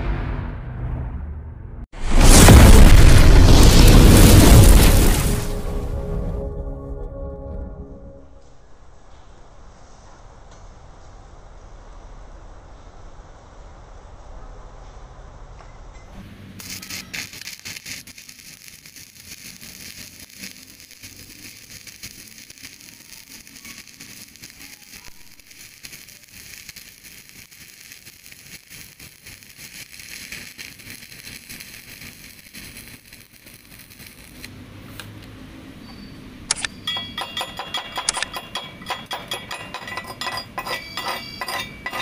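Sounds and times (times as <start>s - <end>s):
welding arc crackling and sizzling: 2.0s - 5.9s, 16.2s - 42.0s.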